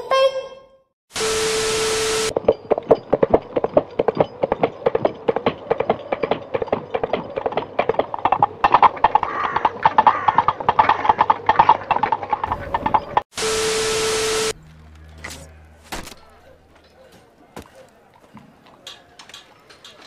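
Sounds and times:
tv static hiss: 0:01.1 - 0:02.3, 0:13.4 - 0:14.6
horse galloping hoofbeats: 0:02.3 - 0:13.2
steady beep: 0:13.4 - 0:14.6.

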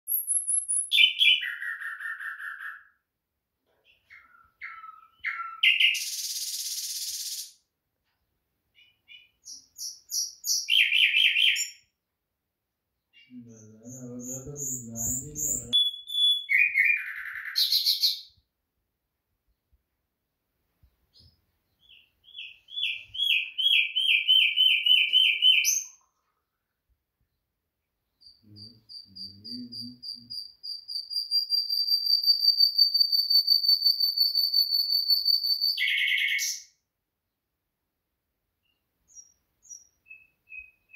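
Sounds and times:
nightingale singing: 0:00.1 - 0:03.1, 0:03.8 - 0:07.7, 0:08.7 - 0:12.0, 0:13.0 - 0:18.5, 0:21.1 - 0:26.1, 0:28.0 - 0:36.8, 0:38.6 - 0:40.9.

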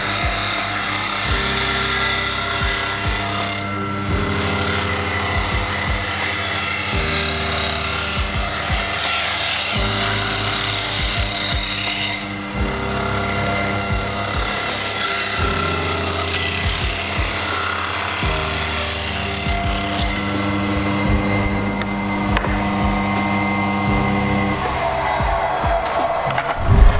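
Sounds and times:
table saw cutting wood: 0:00.0 - 0:26.9.

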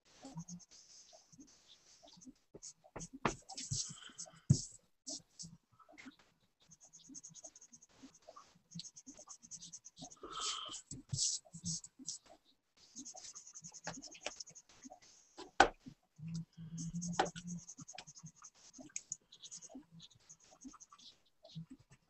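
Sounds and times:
pen scratching on paper: 0:02.6 - 0:04.7, 0:08.9 - 0:12.2, 0:13.0 - 0:14.6, 0:16.8 - 0:21.0.

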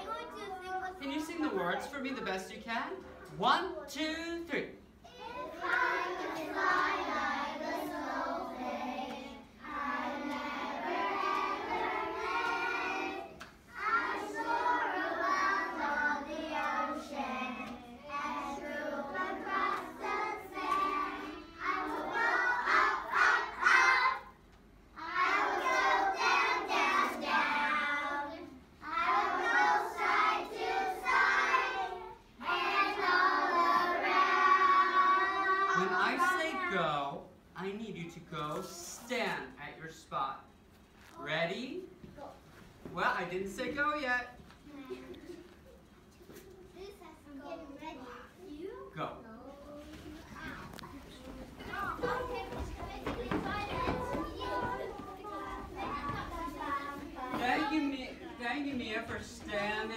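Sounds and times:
children singing in unison: 0:05.3 - 0:24.4, 0:25.0 - 0:35.8, 0:51.9 - 0:57.4.

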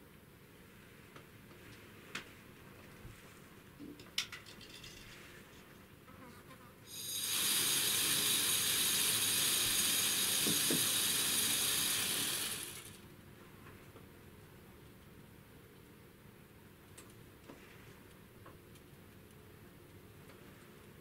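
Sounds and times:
high-pitched insect buzz: 0:06.9 - 0:12.4.

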